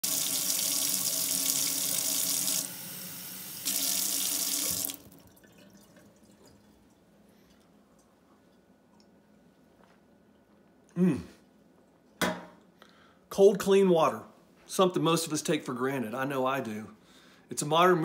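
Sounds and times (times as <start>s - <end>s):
faucet running into a sink: 0.0s - 6.6s.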